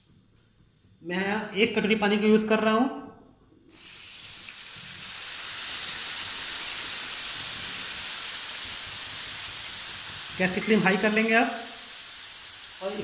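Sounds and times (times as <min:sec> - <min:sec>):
water sizzling in hot oil: 0:03.7 - 0:13.0.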